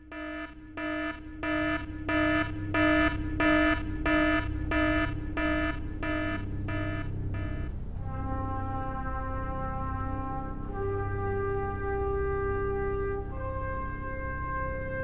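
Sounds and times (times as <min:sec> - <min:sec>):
electronic alarm beeping: 0:00.0 - 0:07.7
steady low tone: 0:00.0 - 0:11.8.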